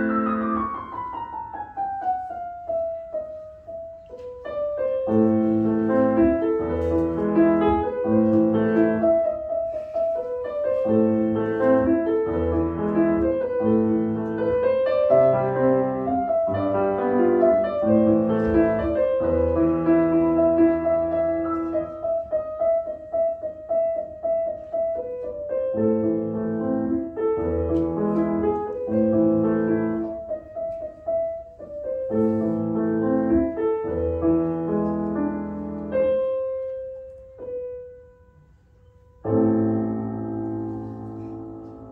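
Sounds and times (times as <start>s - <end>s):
grand piano classical piece: 0.0s - 41.9s.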